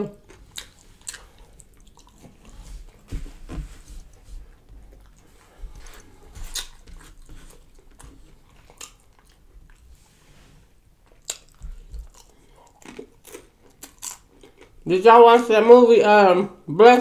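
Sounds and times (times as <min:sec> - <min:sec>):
chewing and mouth smacks: 0:00.1 - 0:03.1, 0:04.5 - 0:09.9, 0:11.0 - 0:14.8.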